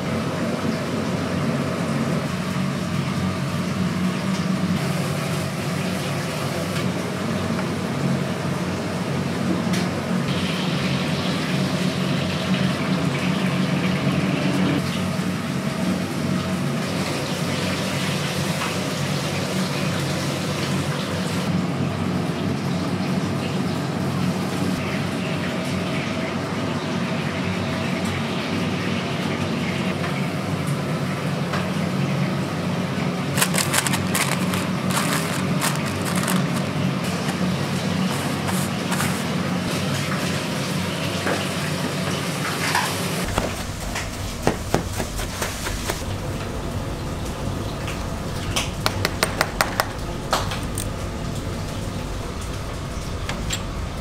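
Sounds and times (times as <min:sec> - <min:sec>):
low machinery hum: 0:00.0 - 0:54.0
water running: 0:33.1 - 0:54.0.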